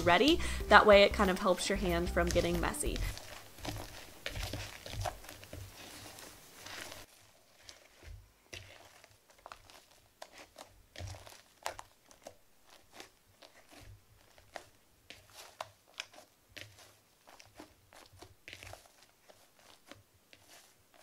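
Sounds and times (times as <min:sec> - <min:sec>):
soft low thumps: 0:00.0 - 0:05.5
slime crackling and squishing: 0:00.0 - 0:21.0.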